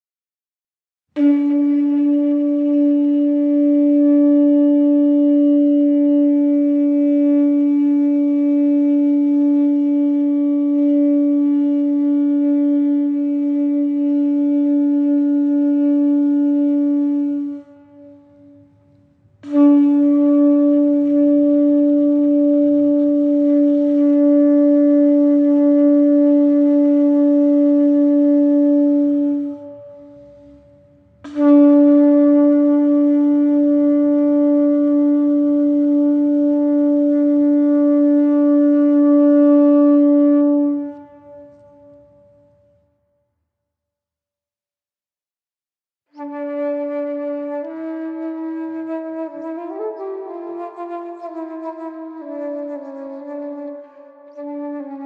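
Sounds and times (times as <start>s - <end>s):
conch shell blasts: 1.2s - 42.9s.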